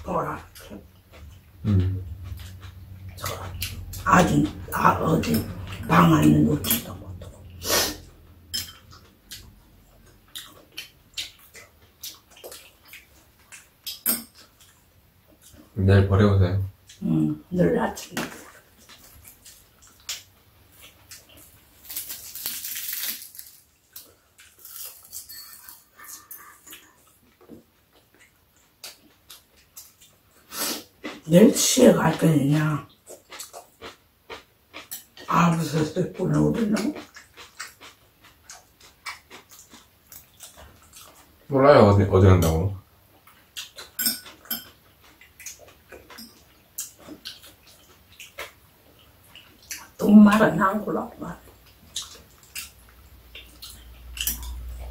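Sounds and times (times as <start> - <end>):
chewing and lip-smacking: 0.4 - 15.8, 18.4 - 31.3, 32.8 - 41.5, 43.0 - 50.4, 51.4 - 54.9
crackling rustling noise: 18.3 - 26.2.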